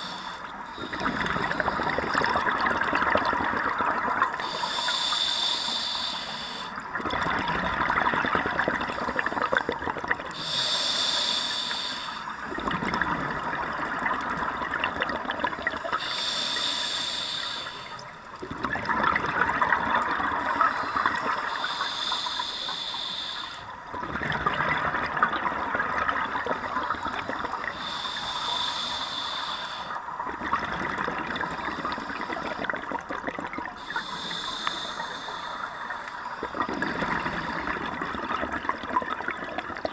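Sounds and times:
regulator hissing inhale: 0:00.0 - 0:02.1, 0:04.4 - 0:06.8, 0:10.3 - 0:12.6, 0:15.9 - 0:18.3, 0:20.5 - 0:23.9, 0:26.6 - 0:30.1, 0:33.8 - 0:37.8
exhaled bubbles rushing: 0:00.8 - 0:04.4, 0:06.9 - 0:10.3, 0:12.5 - 0:16.0, 0:18.4 - 0:21.5, 0:23.9 - 0:27.8, 0:30.2 - 0:33.8, 0:36.4 - 0:39.9.

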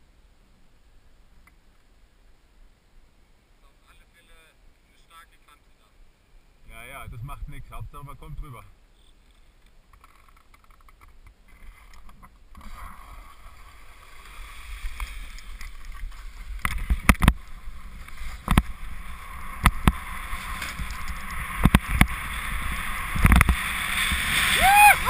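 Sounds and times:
wind rushing over microphone: 0:06.9 - 0:08.5, 0:14.6 - 0:25.0.

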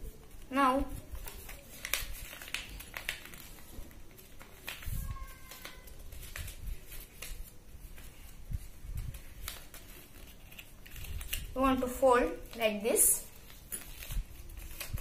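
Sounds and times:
paper crackling while folded: 0:00.0 - 0:15.0.

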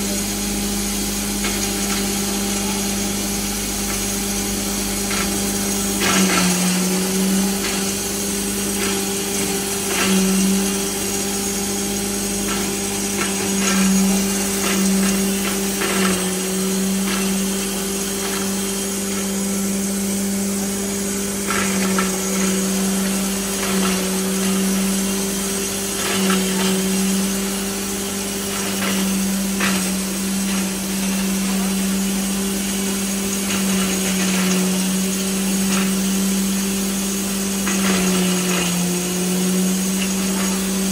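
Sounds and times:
electric motor hum: 0:00.0 - 0:40.9
corn cobs knocking and crackling: 0:01.3 - 0:40.9.

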